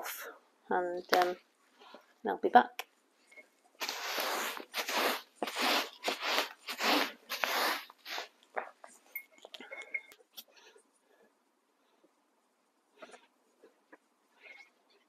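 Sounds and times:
cloth rubbing on bubble wrap: 0:03.8 - 0:08.4.

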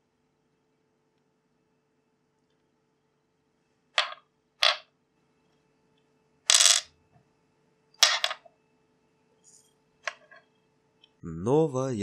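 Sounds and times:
metal parts clinking on tabletop: 0:04.0 - 0:04.8, 0:06.5 - 0:06.9, 0:08.0 - 0:08.5, 0:10.1 - 0:10.5.

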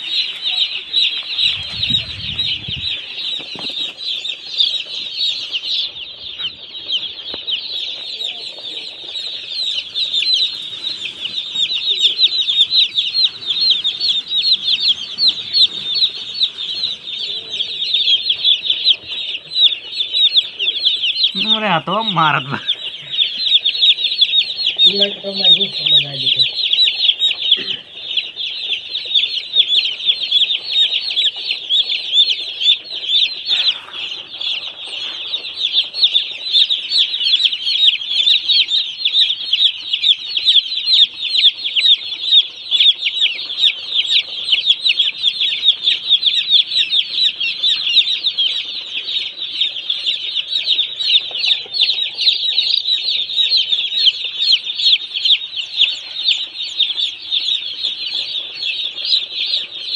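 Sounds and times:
chicks peeping: 0:00.0 - 0:59.9.

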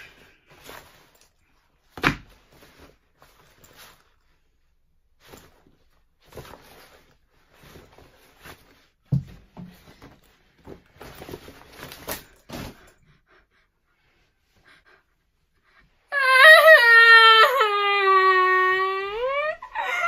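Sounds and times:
rustling in fabric backpack: 0:00.1 - 0:13.0.

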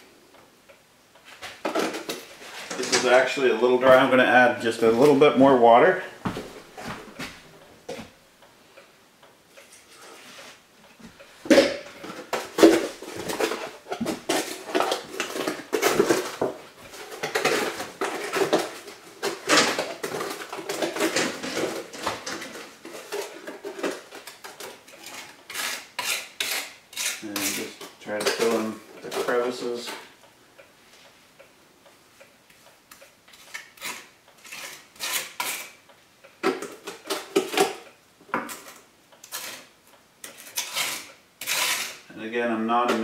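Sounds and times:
tool scraping plastic jug: 0:12.1 - 0:29.6, 0:33.3 - 0:35.7, 0:38.5 - 0:42.1.

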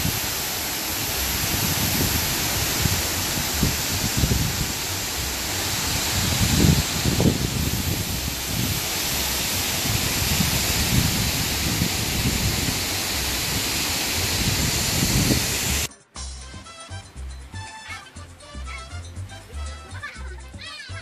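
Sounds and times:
low rumbles: 0:00.0 - 0:15.9
waterfall rushing: 0:00.0 - 0:15.9.

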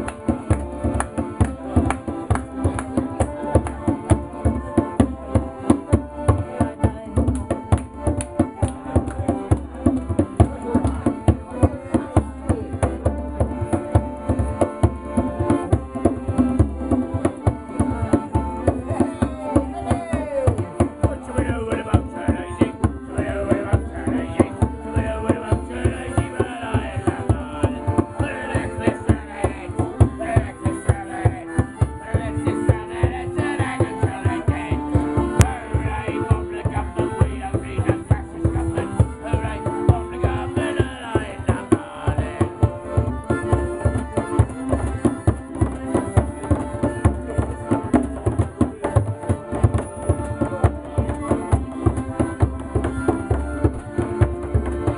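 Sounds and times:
hand-beaten drum beat: 0:00.0 - 0:54.9
piano accordion folk tune: 0:00.0 - 0:54.9
man singing: 0:18.1 - 0:53.8.

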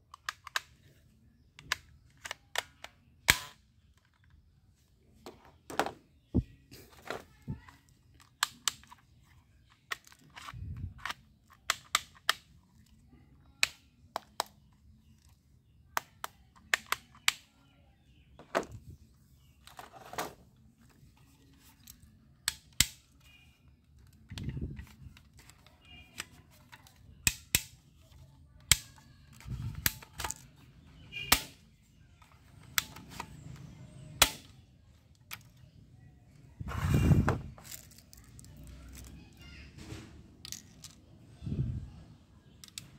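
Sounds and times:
plastic toy guns clicking and clacking: 0:00.1 - 0:01.0, 0:01.6 - 0:04.4, 0:07.0 - 0:13.0, 0:16.0 - 0:17.5, 0:21.8 - 0:31.6, 0:32.2 - 0:35.6, 0:40.4 - 0:41.1.

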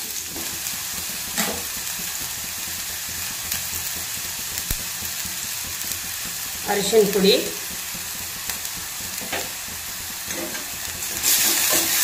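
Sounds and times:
onions sizzling in hot oil: 0:00.0 - 0:12.0
sharp clicks of mustard seeds: 0:03.5 - 0:06.4.

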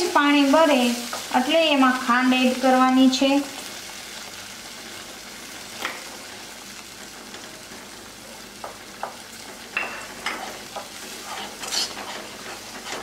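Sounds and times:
semolina sizzling in a pan: 0:00.0 - 0:13.0
spatula knocking and scraping pan: 0:08.6 - 0:13.0.

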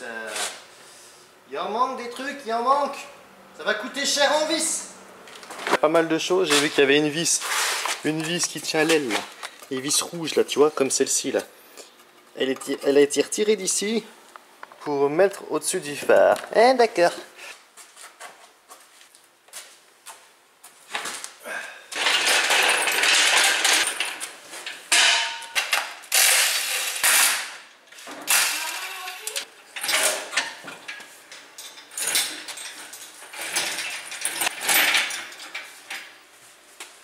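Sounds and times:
chains clanking and rattling: 0:21.9 - 0:27.3, 0:28.3 - 0:31.0, 0:31.6 - 0:35.7.

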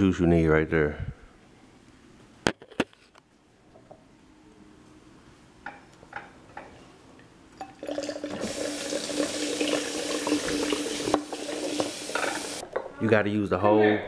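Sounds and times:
champagne pouring and foaming: 0:07.6 - 0:12.6.

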